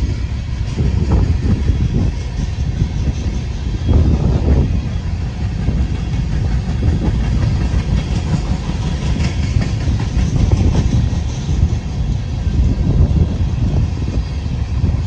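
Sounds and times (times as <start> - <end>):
train wheels rumbling on rail: 0.0 - 15.0
wheels clacking over track: 0.7 - 12.1.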